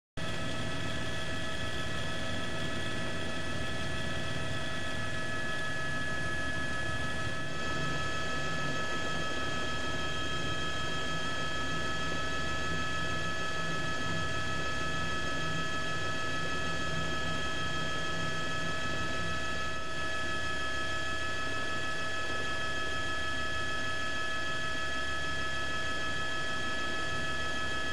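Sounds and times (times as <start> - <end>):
helicopter engine and rotor: 0.2 - 27.9.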